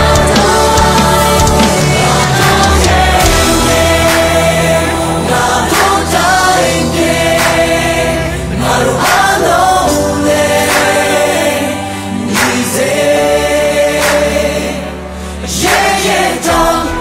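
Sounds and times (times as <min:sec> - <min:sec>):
band backing with drums: 0:00.0 - 0:11.6
group singing pop chorus: 0:00.0 - 0:17.0.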